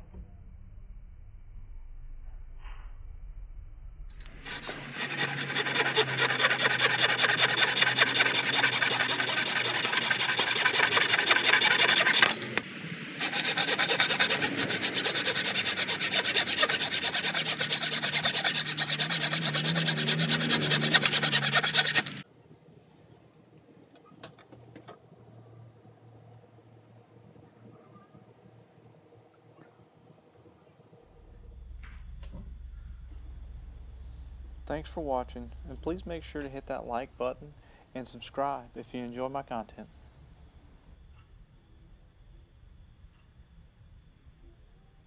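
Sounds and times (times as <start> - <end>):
handsaw cutting wood: 4.3 - 12.6, 13.2 - 22.2.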